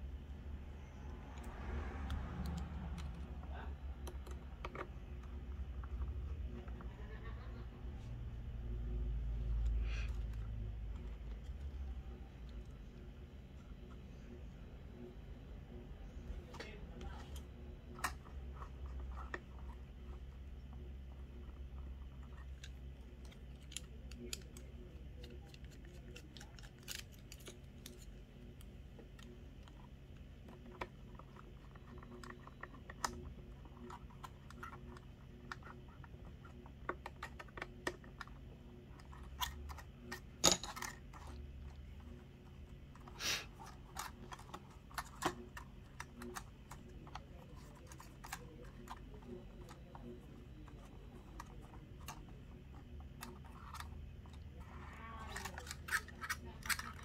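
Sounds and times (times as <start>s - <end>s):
plastic parts being handled: 16.3s - 57.0s.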